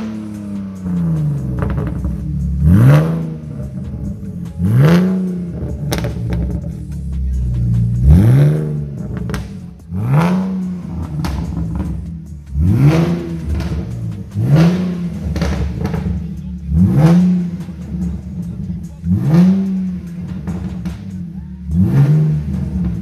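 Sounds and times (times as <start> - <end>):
car engine revving: 0.0 - 23.0.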